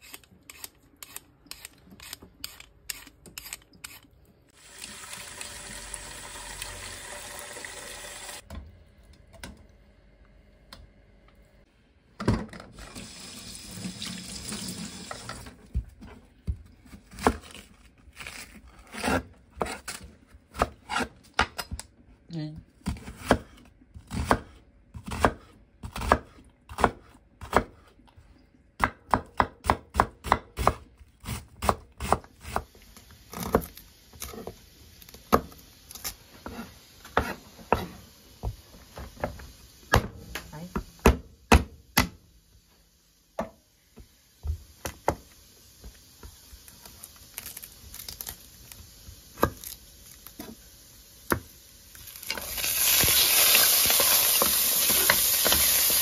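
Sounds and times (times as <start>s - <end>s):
knife chopping on cutting board: 22.8s - 27.8s.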